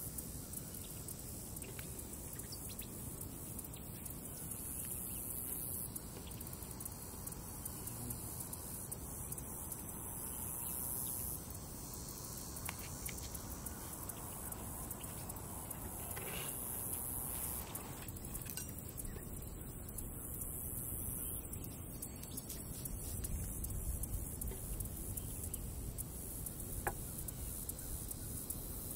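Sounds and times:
faint outdoor background hiss: 0.0 - 28.9.

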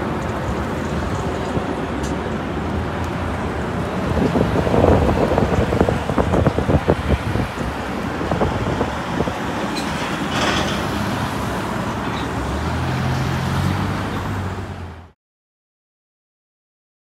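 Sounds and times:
bus engine hum: 0.0 - 15.2
road traffic: 0.0 - 15.2.

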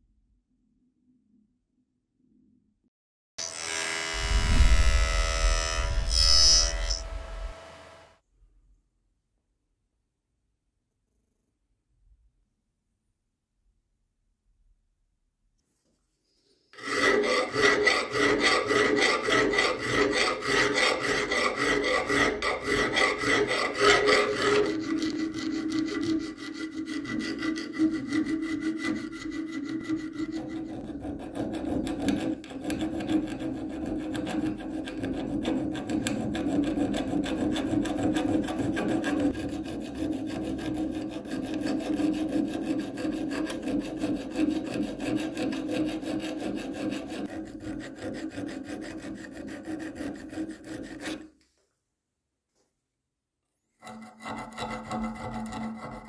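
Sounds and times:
abrasive tool scraping rust off steel: 4.2 - 7.5, 16.8 - 51.3, 53.8 - 56.0.

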